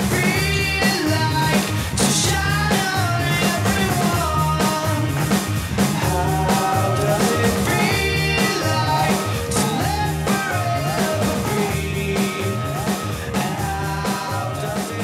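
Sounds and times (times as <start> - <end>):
bass line: 0.0 - 15.0
steady drum beat: 0.0 - 15.0
gliding lead lines: 5.0 - 15.0.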